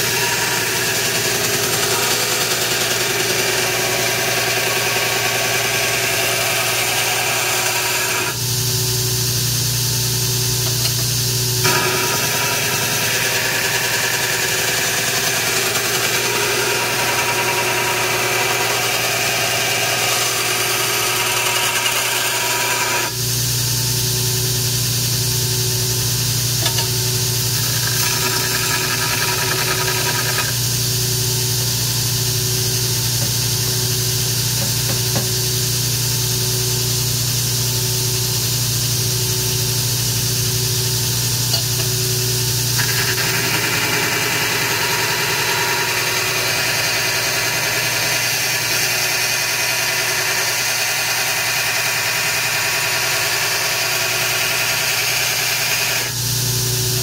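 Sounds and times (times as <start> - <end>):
belt grinder grinding metal: 0.0 - 8.4, 10.6 - 23.2, 26.5 - 30.9, 41.1 - 56.2.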